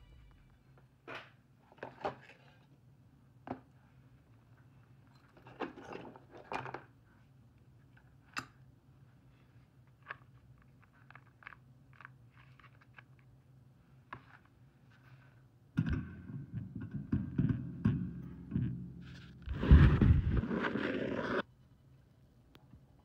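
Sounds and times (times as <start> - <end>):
low steady hum: 0.0 - 1.0, 13.4 - 23.0.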